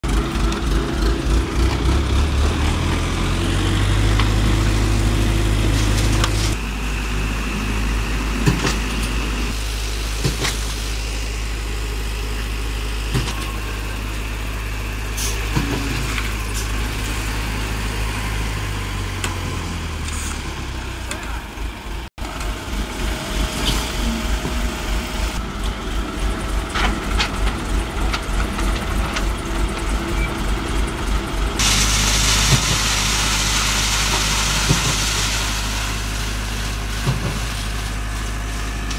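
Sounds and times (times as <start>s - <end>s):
heavy machinery engines humming: 0.1s - 38.9s.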